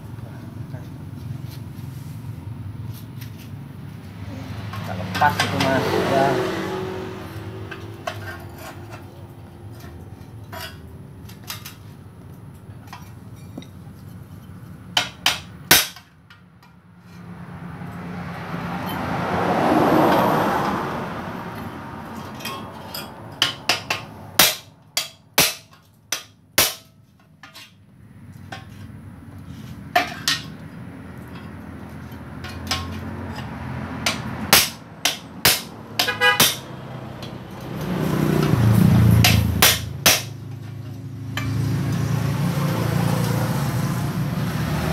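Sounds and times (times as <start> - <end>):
passing vehicle: 0.0 - 26.1, 27.7 - 44.9
hammer striking metal: 15.0 - 16.1, 22.3 - 27.7, 32.4 - 40.4.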